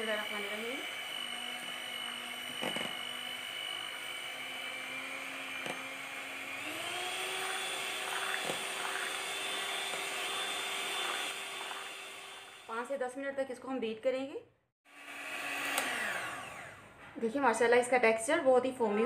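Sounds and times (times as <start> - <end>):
electric hand mixer whirring: 0.0 - 13.0, 14.9 - 17.0.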